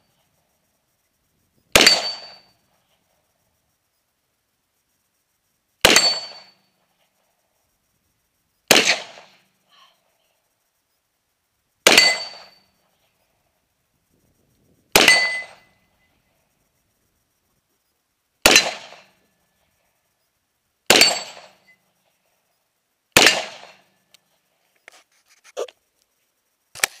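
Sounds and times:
rifle shots: 1.7s - 2.4s, 5.8s - 6.5s, 8.7s - 9.4s, 11.8s - 12.5s, 14.9s - 15.6s, 18.4s - 19.1s, 20.9s - 21.6s, 23.2s - 23.8s
steel target ringing: 1.8s - 2.5s, 5.9s - 6.6s, 11.9s - 12.6s, 15.0s - 15.6s, 20.9s - 21.7s.

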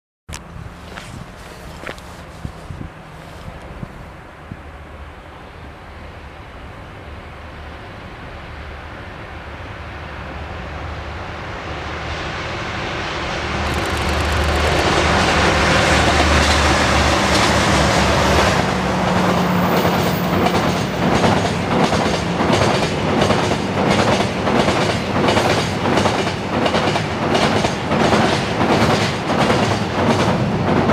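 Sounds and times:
diesel locomotive engines droning: 0.4s - 30.7s
train wheels clickety-clack: 13.6s - 30.9s.

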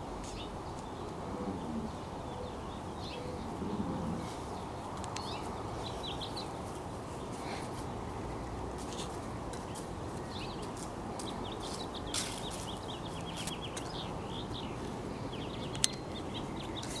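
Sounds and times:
small birds chirping: 0.0s - 17.0s
steady background noise: 0.0s - 17.0s.

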